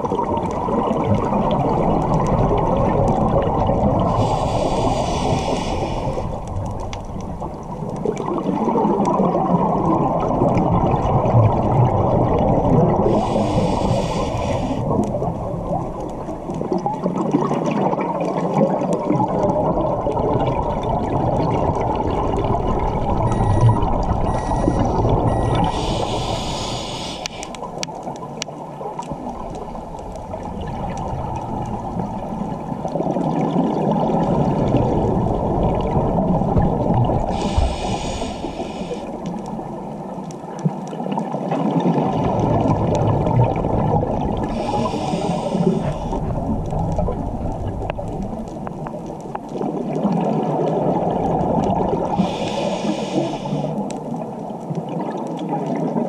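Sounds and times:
exhaled air bubbling: 0:00.0 - 0:56.0
regulator hissing inhales: 0:04.1 - 0:06.3, 0:13.1 - 0:14.9, 0:25.6 - 0:27.7, 0:37.3 - 0:39.2, 0:44.5 - 0:46.3, 0:52.2 - 0:53.8.

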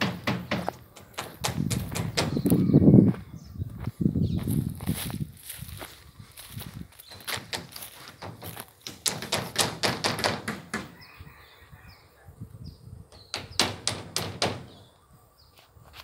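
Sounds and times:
rapid sharp knocks: 0:00.0 - 0:00.8, 0:07.5 - 0:11.0, 0:13.3 - 0:14.7.

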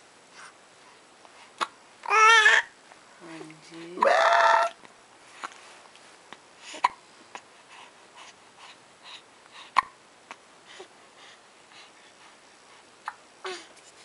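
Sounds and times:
baby breathing softly: 0:00.3 - 0:01.7, 0:06.3 - 0:14.0
baby hiccupping: 0:04.0 - 0:04.8.

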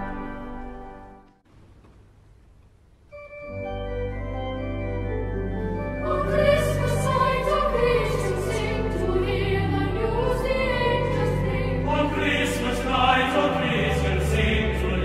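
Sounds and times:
organ chords: 0:00.0 - 0:01.4, 0:03.1 - 0:15.0
choir singing: 0:05.8 - 0:15.0.

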